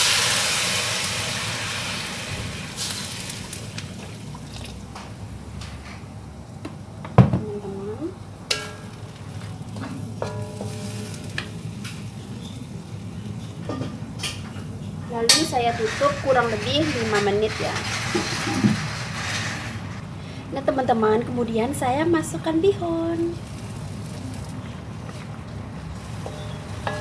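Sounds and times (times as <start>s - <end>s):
water sizzling in hot wok: 0.0s - 4.8s, 15.5s - 20.0s, 23.2s - 24.6s, 25.9s - 27.0s
stirring in a wok: 23.4s - 27.0s.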